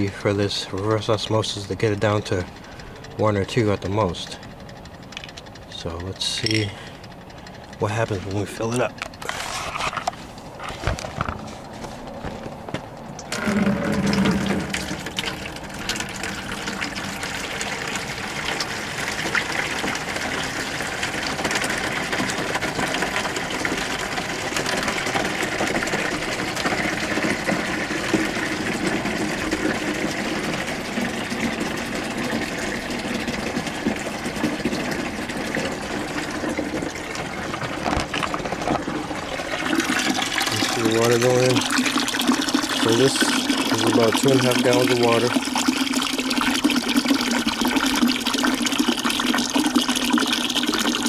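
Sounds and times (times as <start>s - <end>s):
water pouring into plastic bucket: 13.3s - 51.0s.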